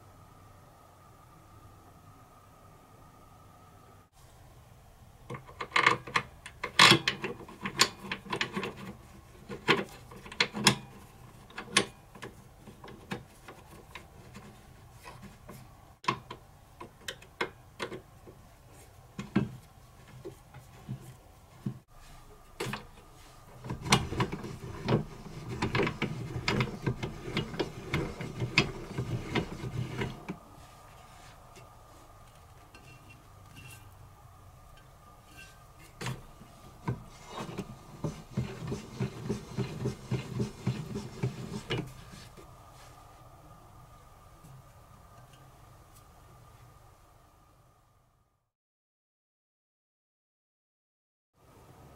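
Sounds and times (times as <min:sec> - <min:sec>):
metal scraping and rubbing: 0:22.0 - 0:31.7, 0:35.2 - 0:42.9.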